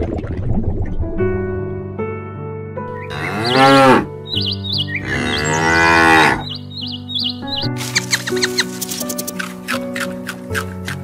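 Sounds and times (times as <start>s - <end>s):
background music: 0.6s - 11.0s
cow mooing: 3.0s - 4.1s, 5.0s - 6.5s.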